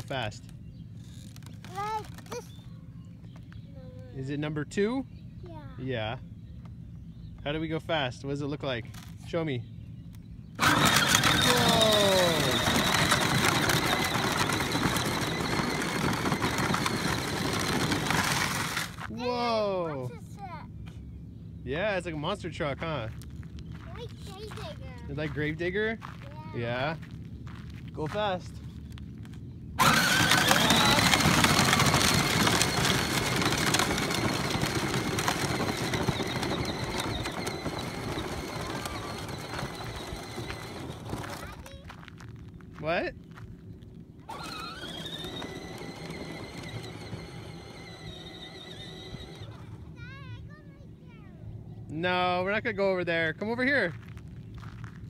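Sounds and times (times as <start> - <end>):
ride-on toy rattling over gravel: 0.0 - 4.0, 10.5 - 19.1, 22.9 - 50.2
electric motor whine: 10.6 - 19.1, 29.8 - 41.4, 44.3 - 49.8
tyres rolling over dirt: 10.6 - 19.1, 29.8 - 42.7, 43.3 - 50.0.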